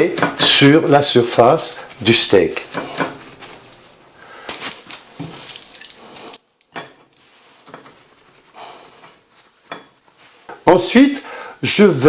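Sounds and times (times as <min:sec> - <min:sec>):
paper towel rustling on steak: 0:03.1 - 0:06.4, 0:07.1 - 0:10.9.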